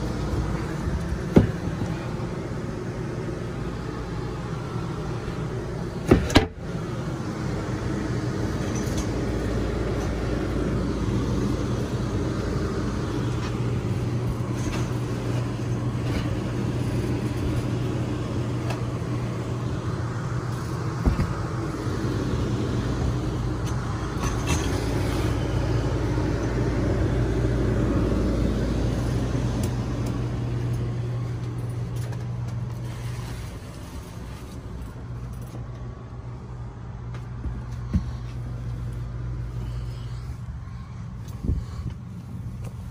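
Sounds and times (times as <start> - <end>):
low hum and rumble: 0.0 - 42.9.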